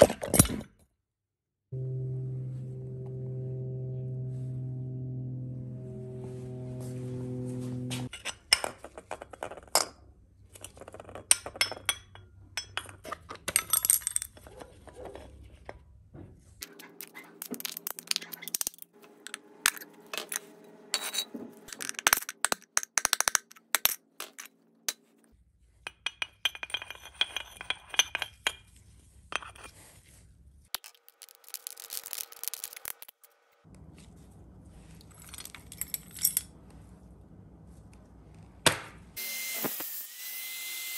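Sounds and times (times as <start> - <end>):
metal clinking and scraping: 16.6 - 25.2, 25.8 - 29.8, 34.9 - 37.0.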